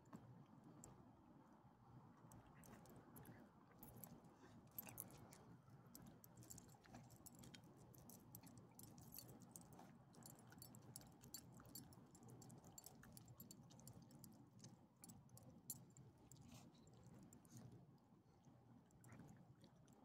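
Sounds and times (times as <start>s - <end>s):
dogs licking and chewing: 2.6s - 17.7s
collar tags jingling: 6.2s - 14.0s.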